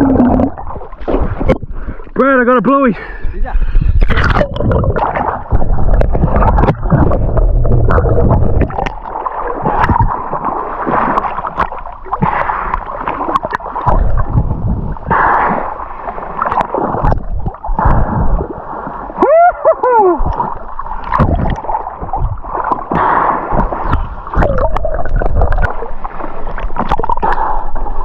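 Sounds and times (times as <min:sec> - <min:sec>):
bubbles rising: 0:00.0 - 0:01.9, 0:04.0 - 0:15.1, 0:19.7 - 0:27.3
water splashing and gurgling: 0:00.0 - 0:28.0
low rumble: 0:03.5 - 0:09.2, 0:13.9 - 0:15.1.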